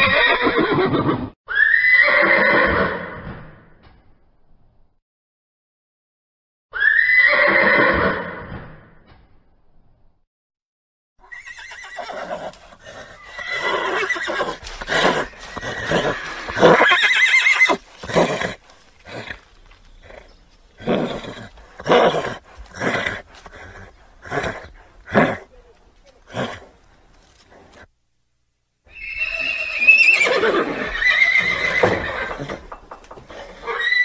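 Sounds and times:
horse neighing: 0.0s - 3.2s, 11.2s - 25.6s, 28.9s - 34.0s.

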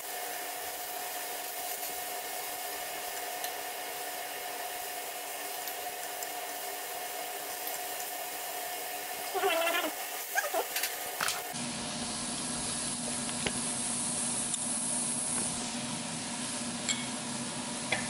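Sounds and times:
meat sizzling on grill: 0.0s - 18.0s
whirring hum with whine: 0.0s - 18.0s
rising voice-like call: 9.3s - 10.7s.

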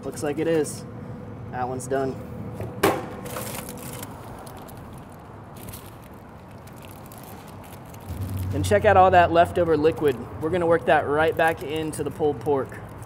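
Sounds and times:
aluminium foil crinkling: 3.2s - 8.8s, 9.6s - 13.0s
soft handling of wrapped food: 3.4s - 8.4s, 10.8s - 13.0s.

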